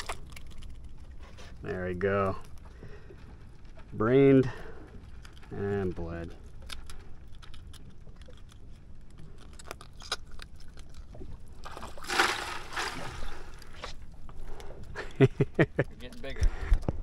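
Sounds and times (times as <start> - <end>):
water splashing in a bucket: 11.5 - 13.9.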